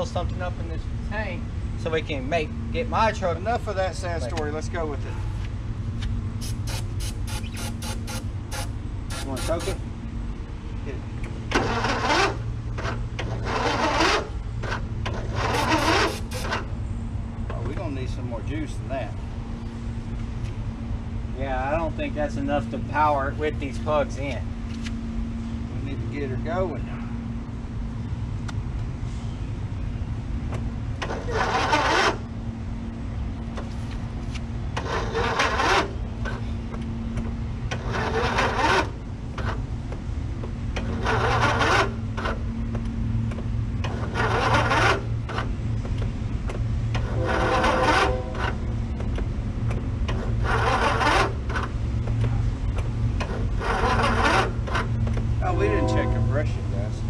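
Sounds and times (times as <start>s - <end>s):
engine cranked by electric starter: 6.4s - 9.8s, 11.2s - 16.8s, 31.0s - 32.4s, 34.7s - 40.0s, 40.7s - 56.0s
steady low hum: 14.2s - 31.4s, 41.8s - 57.0s.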